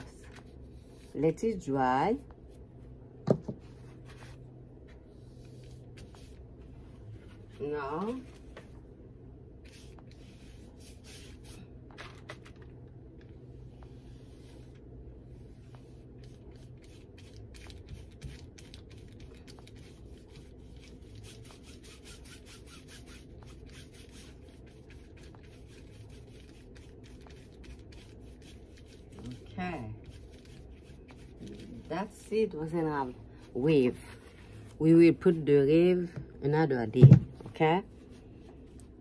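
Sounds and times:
paintbrush strokes on paper: 0:00.4 - 0:01.3, 0:03.8 - 0:08.4, 0:09.6 - 0:11.6, 0:13.7 - 0:34.7.

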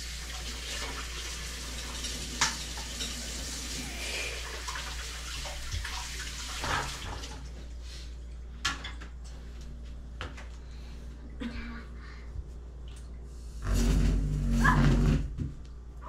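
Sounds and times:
water running from a tap: 0:00.0 - 0:07.6.

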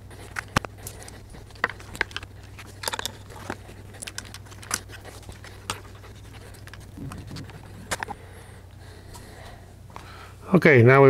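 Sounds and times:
steady low hum: 0:00.0 - 0:10.5
clicks and rattles of handled parts: 0:00.2 - 0:08.2.

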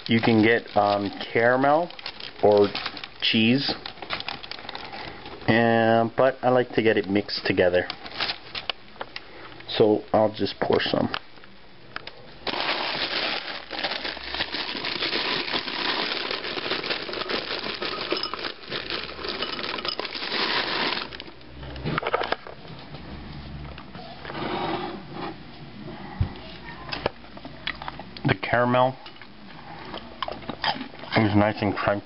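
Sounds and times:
popcorn rattling into a bowl: 0:00.0 - 0:05.2, 0:12.4 - 0:21.4
plastic bag crinkling: 0:00.0 - 0:05.7, 0:06.8 - 0:08.8, 0:12.4 - 0:21.6.

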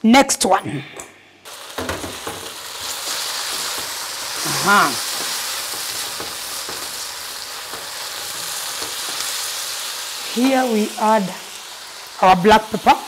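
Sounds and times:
food sizzling in frying pan: 0:01.4 - 0:13.0
person humming: 0:04.4 - 0:05.0.

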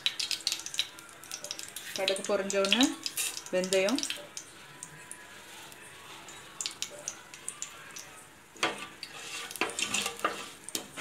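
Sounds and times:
seeds popping in hot oil: 0:00.0 - 0:05.2, 0:06.3 - 0:11.0
wooden spatula scraping a pan: 0:08.6 - 0:11.0.

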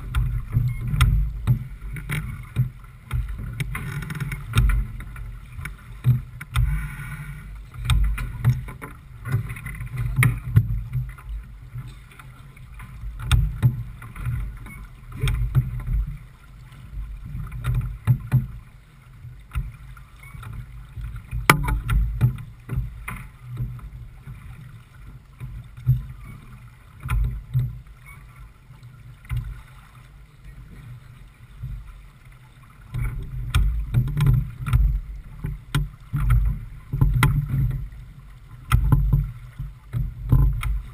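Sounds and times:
water rushing past hull: 0:00.0 - 0:40.9
sharp knocks: 0:21.5 - 0:22.0.

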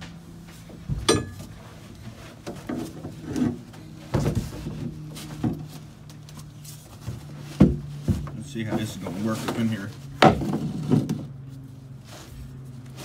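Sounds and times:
steady low hum: 0:00.0 - 0:13.0
steel knocks and clanks: 0:00.9 - 0:01.6
sharp metal clink: 0:01.1 - 0:01.4.

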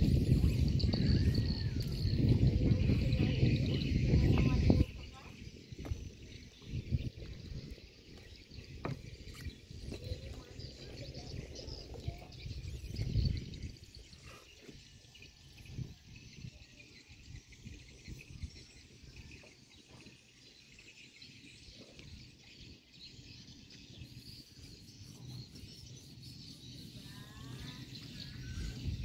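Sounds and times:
insects chirring: 0:23.0 - 0:29.0.

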